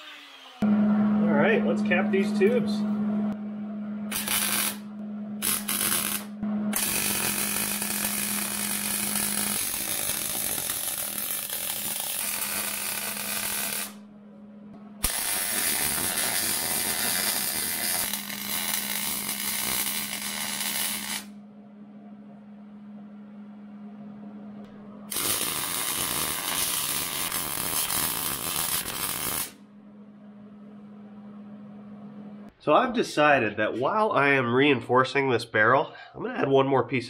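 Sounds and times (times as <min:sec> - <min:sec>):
steady low hum: 0:00.6 - 0:34.5
welder crackling: 0:04.1 - 0:14.0, 0:15.0 - 0:21.3, 0:25.1 - 0:29.6.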